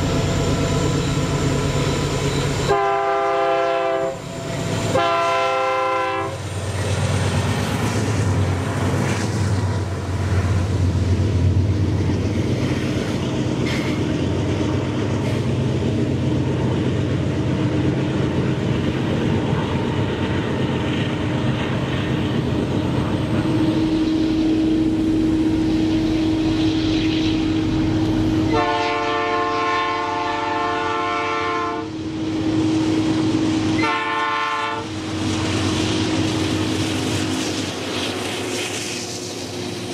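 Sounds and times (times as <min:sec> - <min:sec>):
locomotive engines rumbling: 0:00.0 - 0:39.9
locomotive air horn: 0:02.7 - 0:04.2, 0:04.9 - 0:06.4, 0:28.5 - 0:31.9, 0:33.7 - 0:34.9
thin steady whine: 0:23.0 - 0:28.7.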